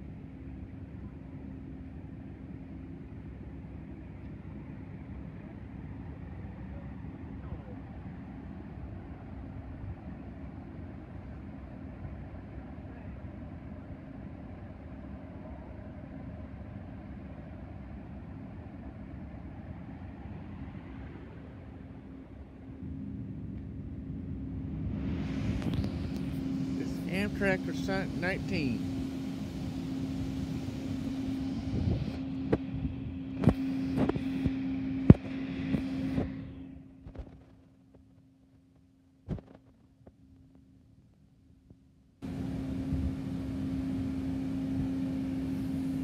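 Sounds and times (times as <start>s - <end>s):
idling train low rumble and hum: 0.0s - 46.0s.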